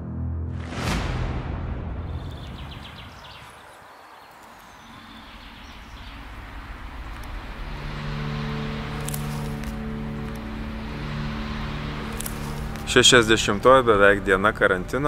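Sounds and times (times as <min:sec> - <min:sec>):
steady rushing noise: 0:01.0 - 0:15.0
low held chord: 0:07.3 - 0:15.0.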